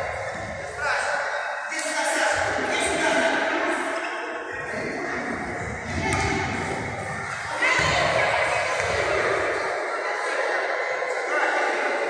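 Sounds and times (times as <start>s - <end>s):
echoing children's voices: 3.0s - 12.0s.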